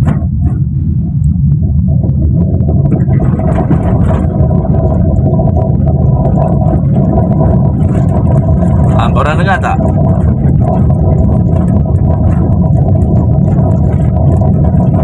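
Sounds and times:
road rumble inside car: 0:00.0 - 0:15.0.

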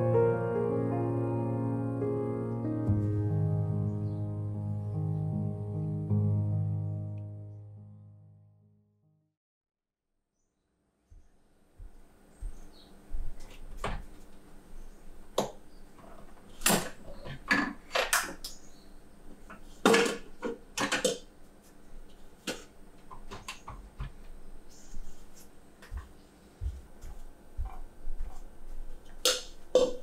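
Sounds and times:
kitchenware clinking and knocking: 0:16.6 - 0:18.4, 0:19.8 - 0:21.2, 0:29.3 - 0:30.0.

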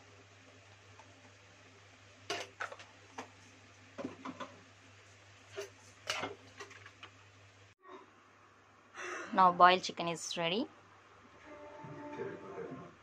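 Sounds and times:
metal kitchenware clinking: 0:05.6 - 0:06.8.

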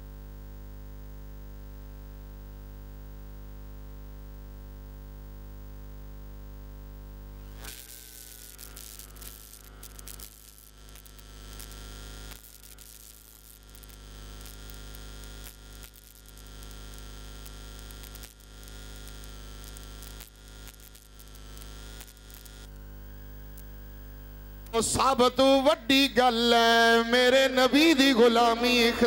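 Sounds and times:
electrical mains hum: 0:00.0 - 0:29.0
static hiss: 0:06.9 - 0:29.0
faint crackles: 0:07.5 - 0:24.8.

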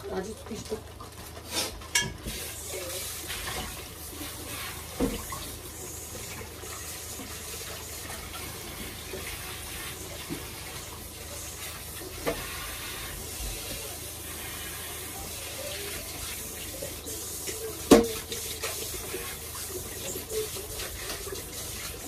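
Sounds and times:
tap running into sink: 0:04.9 - 0:05.6, 0:12.0 - 0:12.6, 0:17.4 - 0:22.0.

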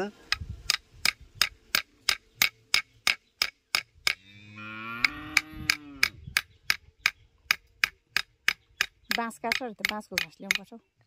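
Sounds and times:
machete chopping wooden stick: 0:00.3 - 0:04.2, 0:05.3 - 0:10.7
cow lowing: 0:04.2 - 0:06.2.

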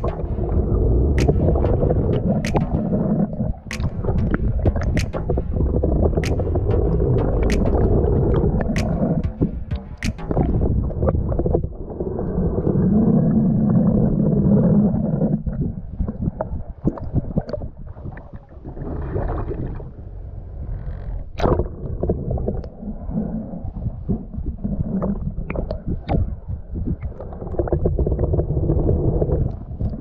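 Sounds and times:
sharp clicks and knocks: 0:00.0 - 0:00.6, 0:01.2 - 0:10.7
muffled water gurgling and sloshing: 0:00.0 - 0:30.0.

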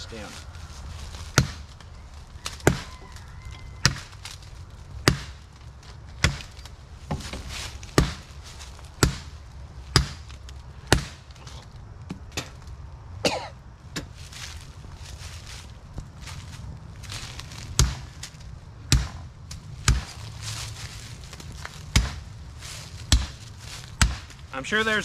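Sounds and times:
axe chopping into tree trunk: 0:01.4 - 0:01.6, 0:02.5 - 0:02.9, 0:05.0 - 0:05.4, 0:06.2 - 0:08.3, 0:09.0 - 0:09.3, 0:09.9 - 0:11.3, 0:17.7 - 0:18.3, 0:18.9 - 0:20.2, 0:21.9 - 0:22.3, 0:23.0 - 0:24.4.

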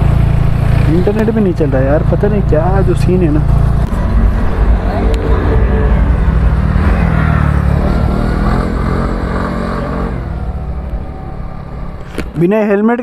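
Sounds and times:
scooter engine running: 0:00.0 - 0:12.2.

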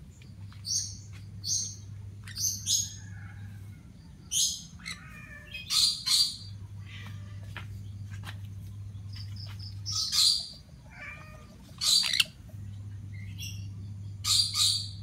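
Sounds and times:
parrot screeching: 0:04.8 - 0:06.4, 0:10.2 - 0:12.3
parrot chirps: 0:11.8 - 0:12.4.

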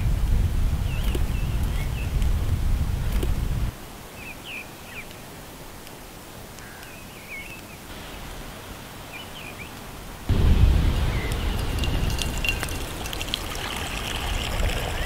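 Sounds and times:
low rumble: 0:00.0 - 0:03.7, 0:10.3 - 0:15.0
small birds chirping: 0:00.7 - 0:05.3, 0:06.5 - 0:08.4, 0:09.0 - 0:15.0.

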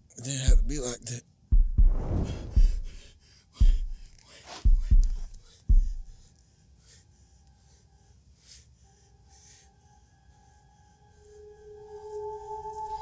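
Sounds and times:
deep booming thuds: 0:00.5 - 0:04.1, 0:04.7 - 0:06.2
man gasping and panting: 0:02.3 - 0:07.2
high steady music drone: 0:09.8 - 0:13.0.

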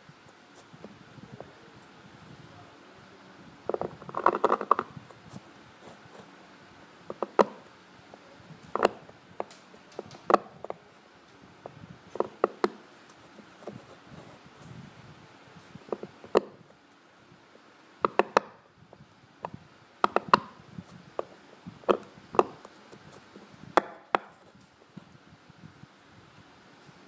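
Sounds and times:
knife scraping stone: 0:03.7 - 0:04.9
knife chipping stone clicks: 0:18.0 - 0:18.5, 0:20.0 - 0:20.5.

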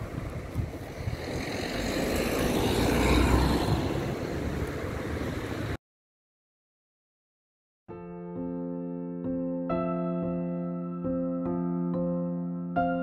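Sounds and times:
vehicle rumble passing: 0:00.0 - 0:05.8.

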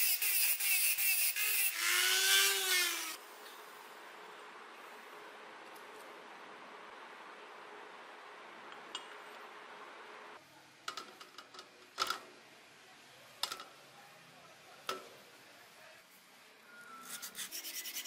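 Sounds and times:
power tool running: 0:01.3 - 0:03.2.

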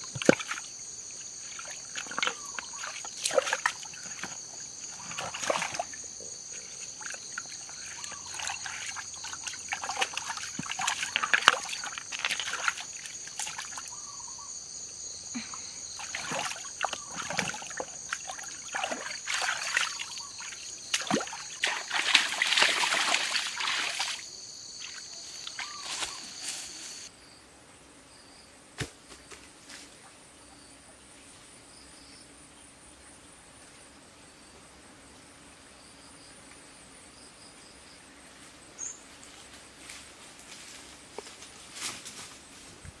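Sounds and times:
water splashing in a stream: 0:00.0 - 0:14.0, 0:15.9 - 0:26.1
insects trilling: 0:00.0 - 0:28.6, 0:29.3 - 0:42.8.

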